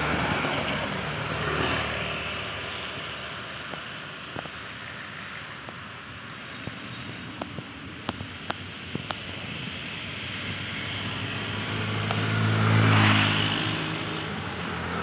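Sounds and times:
traffic hiss on wet road: 0.0s - 15.0s
motorcycle passing on wet road: 9.8s - 15.0s.

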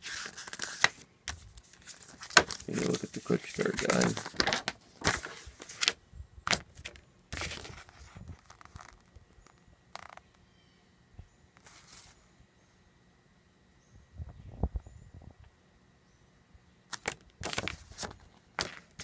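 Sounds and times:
paper rustling and crackling: 0.0s - 10.2s, 11.6s - 12.2s, 16.9s - 19.0s.

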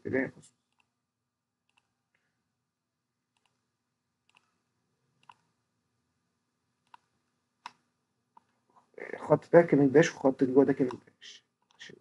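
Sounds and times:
computer mouse clicks: 0.7s - 0.9s, 1.6s - 2.2s, 3.3s - 3.6s, 4.2s - 4.6s, 5.2s - 5.5s, 6.8s - 8.6s, 11.6s - 12.0s.

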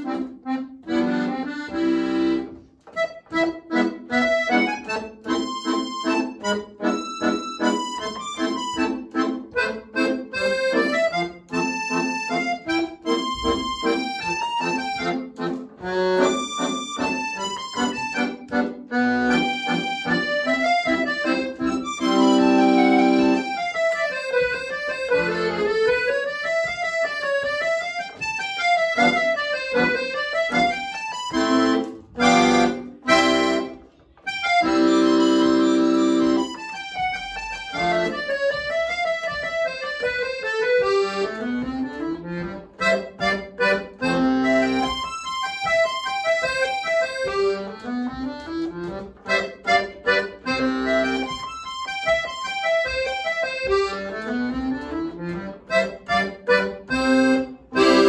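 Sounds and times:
piano accordion playing: 0.0s - 58.0s.

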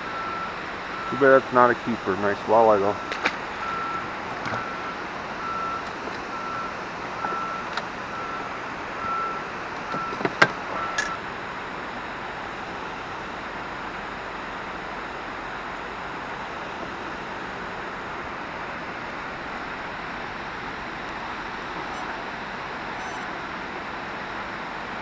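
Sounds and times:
repeating electronic beep: 23.0s - 23.3s.

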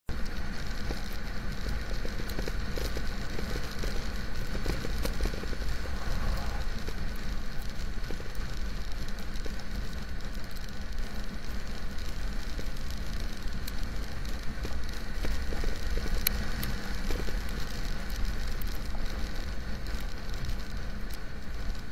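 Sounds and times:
raindrops ticking on camera: 0.1s - 21.9s
wind and road noise: 0.1s - 21.9s.

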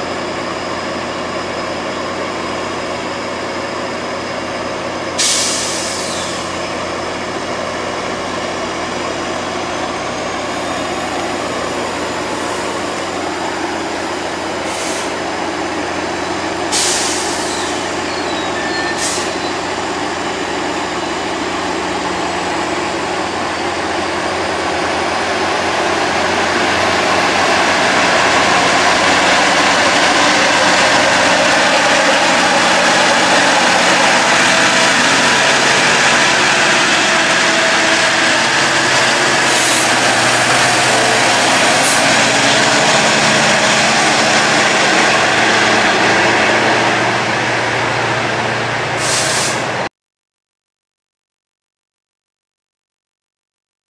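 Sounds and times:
diesel locomotive engine drone: 0.0s - 49.9s
train coaches rolling on rails: 0.0s - 49.9s
short high hisses: 5.2s - 6.5s, 16.7s - 17.8s, 49.0s - 49.7s.

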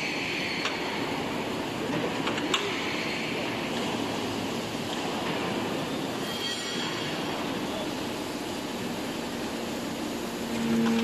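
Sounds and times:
steady tonal hum: 8.8s - 11.0s.

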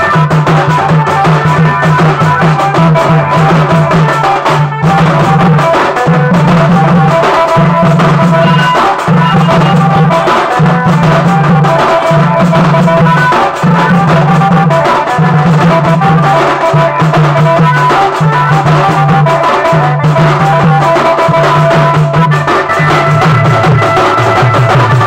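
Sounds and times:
amplified melody: 0.0s - 25.0s
barrel drums beaten fast: 0.0s - 25.0s.

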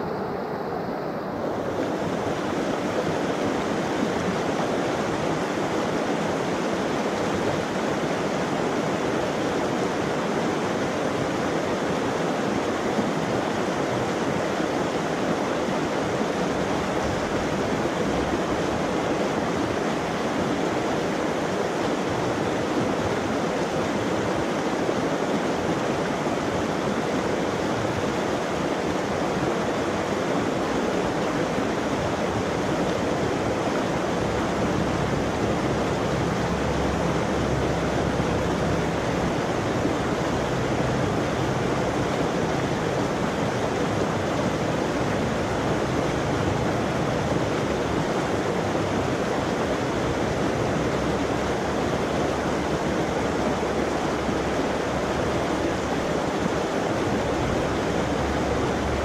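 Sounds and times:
creek flowing over waterfall: 0.0s - 59.0s.

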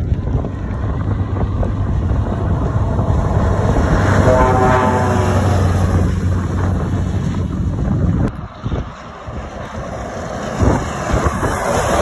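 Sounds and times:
lorry diesel engine driving past: 0.5s - 7.8s
air horn blast: 2.3s - 6.9s.

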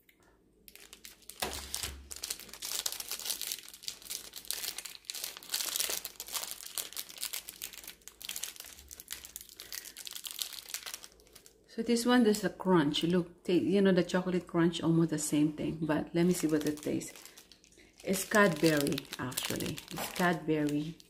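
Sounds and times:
plastic wrapper tearing and crinkling: 0.0s - 11.7s, 16.3s - 21.0s.

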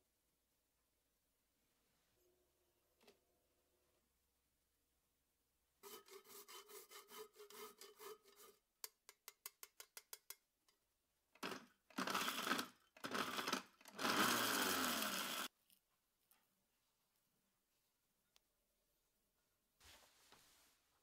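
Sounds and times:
nutmeg grated on a grater: 5.8s - 8.6s
blender grinding spices: 11.4s - 15.5s.

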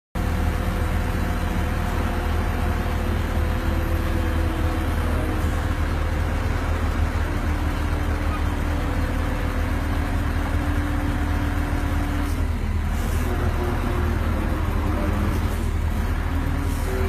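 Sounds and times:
diesel engine rumbling: 0.2s - 17.0s.

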